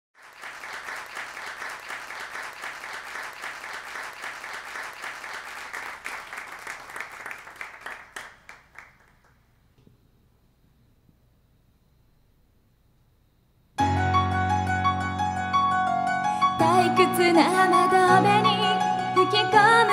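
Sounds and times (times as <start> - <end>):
audience applauding: 0.2 - 9.4.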